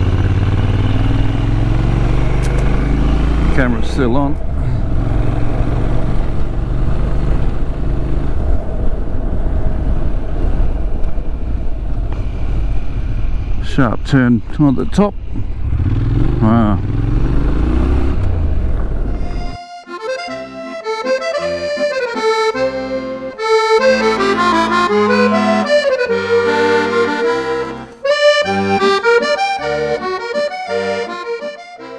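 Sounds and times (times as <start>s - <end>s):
motorcycle engine running: 0.0s - 8.4s
steady rushing noise: 3.4s - 17.4s
instrumental background music: 19.1s - 31.9s.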